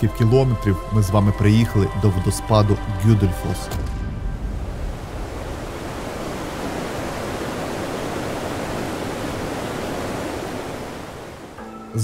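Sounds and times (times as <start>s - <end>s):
waterfall rushing: 4.3s - 11.6s.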